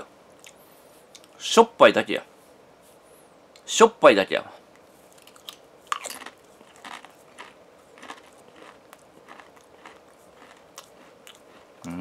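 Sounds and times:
crisps being chewed: 0:05.1 - 0:12.0.

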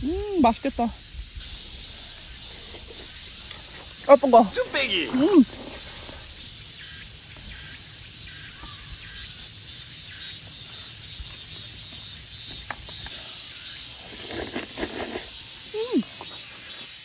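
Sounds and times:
insects chirring: 0:00.0 - 0:17.0
mouth sounds eating soup: 0:02.4 - 0:06.3.

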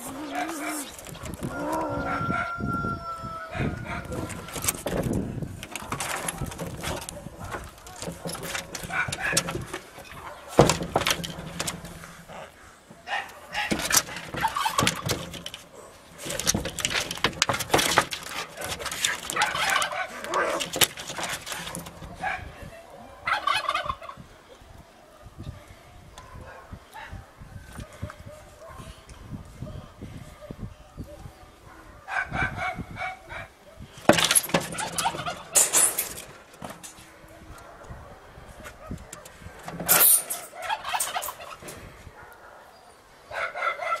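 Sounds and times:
scratching on corrugated roof: 0:00.0 - 0:01.9, 0:03.8 - 0:22.6, 0:33.9 - 0:37.3, 0:38.5 - 0:42.1
cats screeching and yowling: 0:00.0 - 0:05.2.

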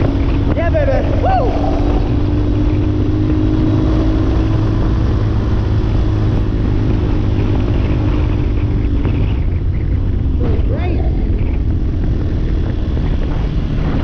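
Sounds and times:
motorcycle engine cruising: 0:00.0 - 0:14.0
wind and road noise: 0:00.0 - 0:14.0.

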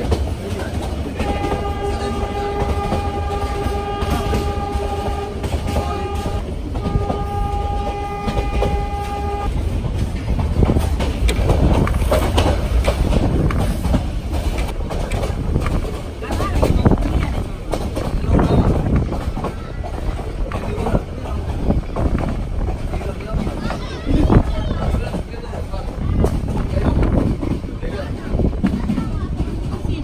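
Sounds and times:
train rumbling and clattering on track: 0:00.0 - 0:30.0
train horn blasts: 0:01.2 - 0:09.5.

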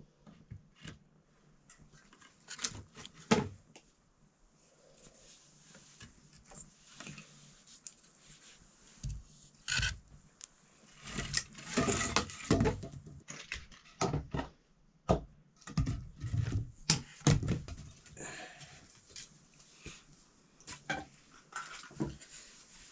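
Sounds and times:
objects knocking and scraping: 0:11.0 - 0:18.1, 0:20.7 - 0:22.4.

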